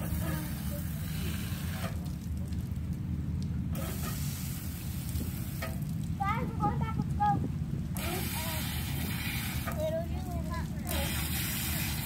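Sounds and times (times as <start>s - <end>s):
shower spraying water: 0.0s - 2.6s, 3.7s - 6.4s, 8.0s - 12.0s
wind rumble on microphone: 2.4s - 10.5s.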